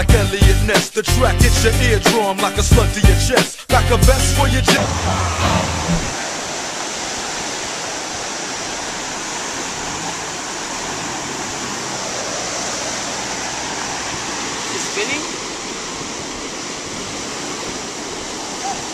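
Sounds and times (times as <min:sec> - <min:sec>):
music bass: 0:00.0 - 0:06.1
wind blowing across microphone: 0:15.4 - 0:18.9.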